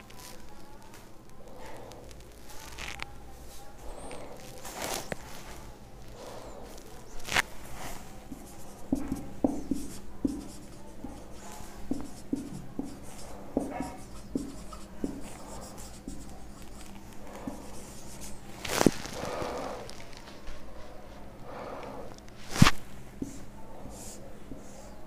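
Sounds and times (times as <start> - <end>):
marker writing on whiteboard: 7.7 - 18.6, 23.2 - 25.0.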